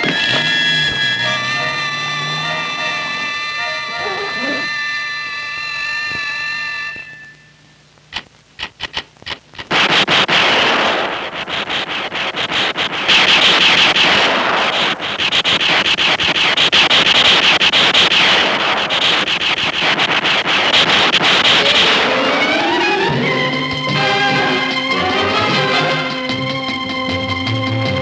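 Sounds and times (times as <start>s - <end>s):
noisy crackle: 0.0s - 27.3s
rapid gunfire: 9.6s - 22.7s.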